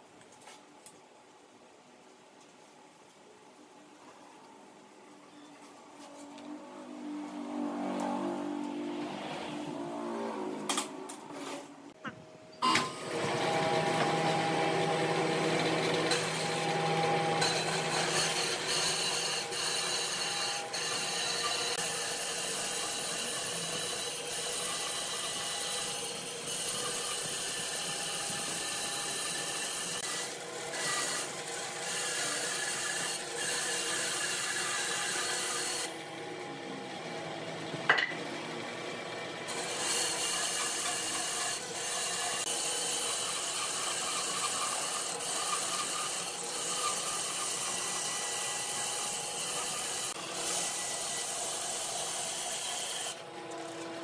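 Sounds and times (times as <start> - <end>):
power tool cutting wood: 12.6 - 54.0.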